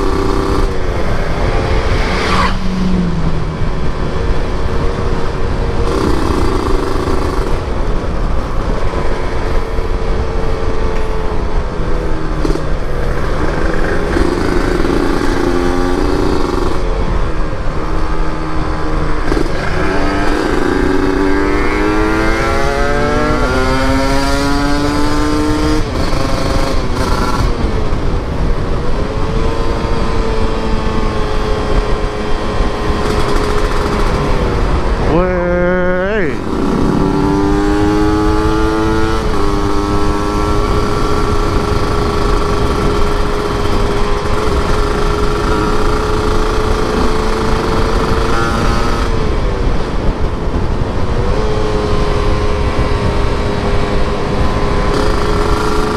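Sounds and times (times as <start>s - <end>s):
motorcycle engine running: 0.0s - 51.4s, 52.0s - 55.9s
wind rushing over microphone: 0.0s - 55.9s.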